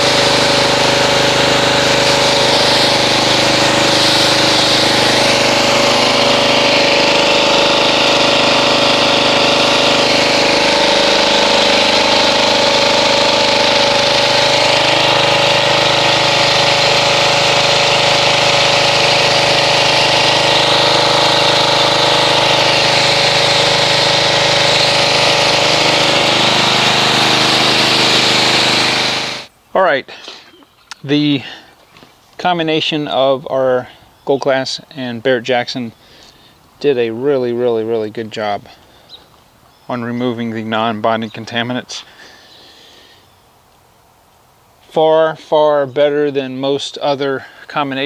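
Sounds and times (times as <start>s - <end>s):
pressure washer spraying: 0.0s - 29.5s.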